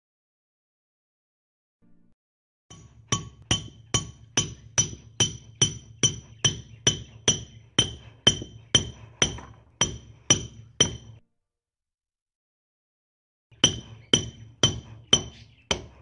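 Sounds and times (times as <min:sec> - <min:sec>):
hammer striking nail into wood: 0:02.7 - 0:11.2, 0:13.6 - 0:16.0.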